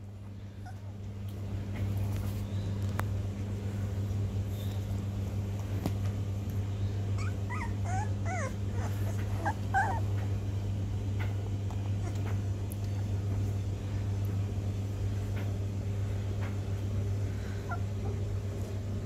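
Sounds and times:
steady low hum: 0.0 - 19.0
puppies whimpering: 0.6 - 1.0, 7.1 - 10.3, 11.8 - 12.4, 17.4 - 18.3.

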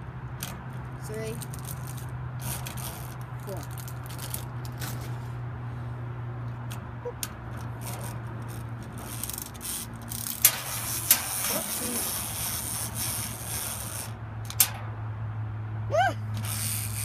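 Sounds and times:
wind-up toy rasping: 7.8 - 14.2, 16.4 - 17.0.

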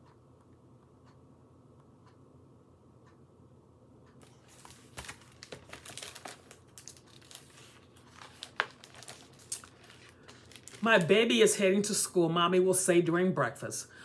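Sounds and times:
paper pages rustling: 4.2 - 11.2.

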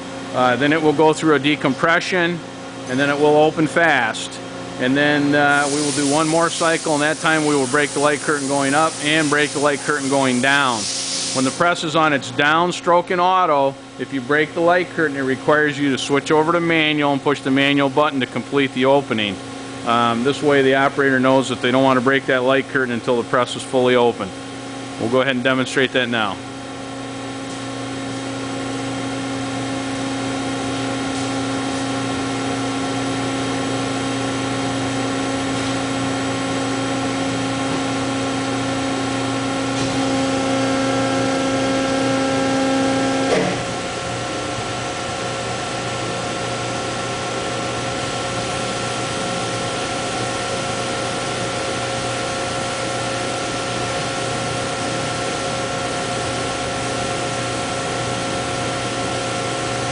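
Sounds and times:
hydraulic press whining: 39.3 - 44.4
press clunk: 43.3 - 43.8.

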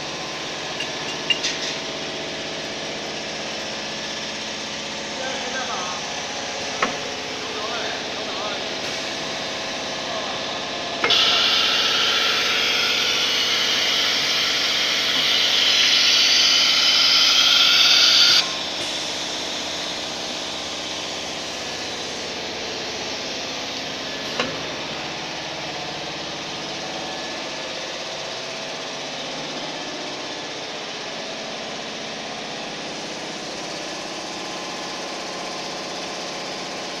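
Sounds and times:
router high hiss: 0.0 - 26.6
machine hum: 0.0 - 34.4.

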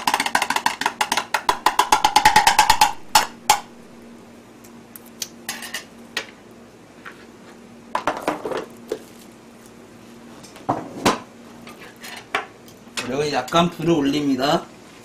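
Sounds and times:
utensil knocking on metal pan: 0.0 - 3.7
faint steady hum: 0.0 - 15.0.

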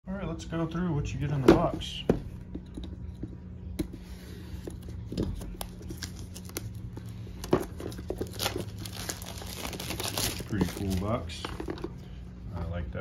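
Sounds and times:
plastic wrap crinkling: 5.3 - 11.9.

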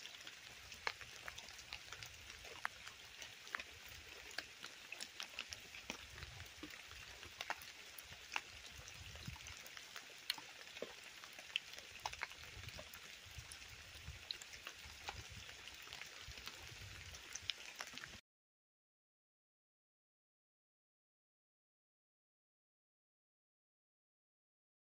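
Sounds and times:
rain falling on leaves: 0.0 - 18.2.

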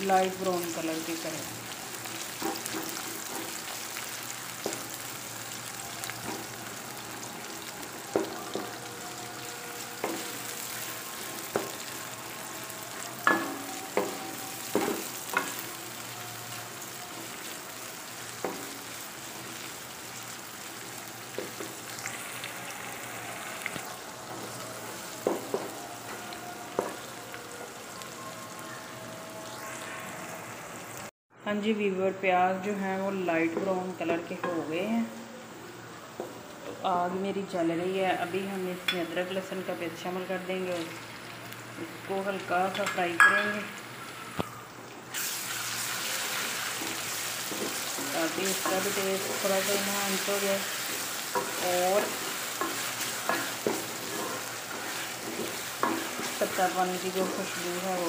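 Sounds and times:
onions sizzling in pot: 0.0 - 31.1, 33.0 - 58.0
wooden spoon scraping pot: 51.4 - 56.6.

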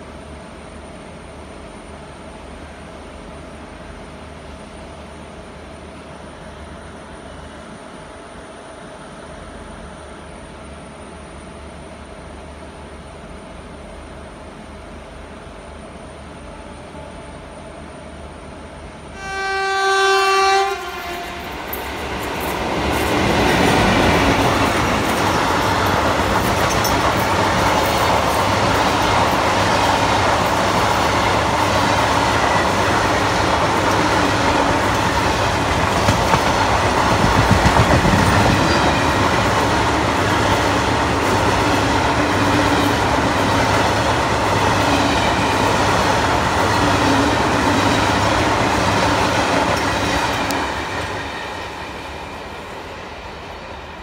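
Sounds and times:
locomotive horn blast: 19.2 - 21.8
train wheels clattering over rails: 21.4 - 52.2.

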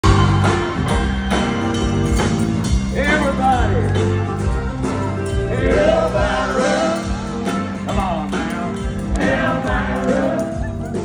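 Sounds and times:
drum kit beat: 0.0 - 11.0
man singing: 2.9 - 3.8, 5.5 - 11.0.

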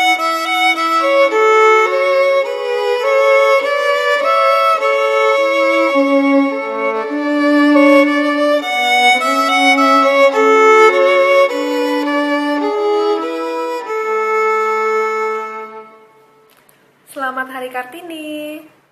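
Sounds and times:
violin melody: 0.0 - 16.5.

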